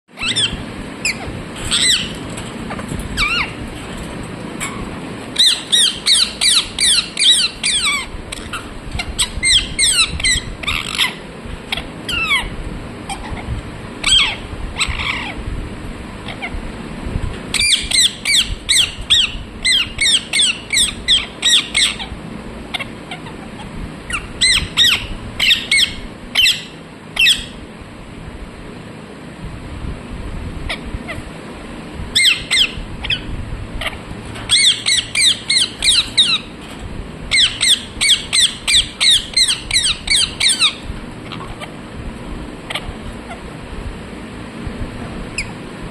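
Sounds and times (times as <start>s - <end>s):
parakeet screeching: 0.2s - 3.6s, 5.4s - 15.4s, 16.2s - 16.6s, 17.5s - 27.6s, 32.2s - 36.5s, 37.3s - 41.8s, 42.7s - 43.5s.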